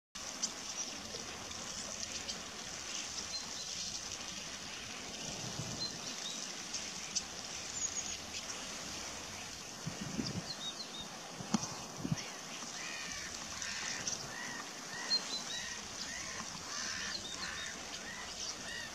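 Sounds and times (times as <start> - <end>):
birds splashing in water: 0.2 - 18.9.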